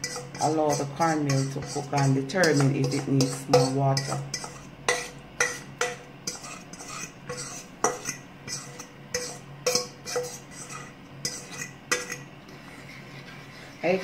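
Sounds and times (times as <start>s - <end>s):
utensil knocking metal pot: 0.0s - 6.0s.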